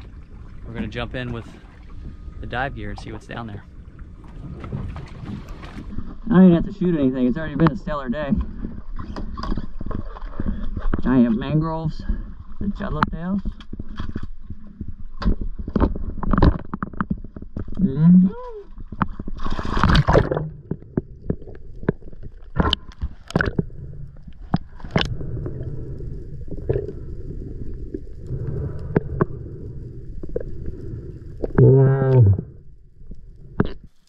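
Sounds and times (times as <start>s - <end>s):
muffled underwater gurgling rumble: 0.0s - 34.0s
underwater clicks: 18.8s - 25.8s, 27.9s - 29.4s.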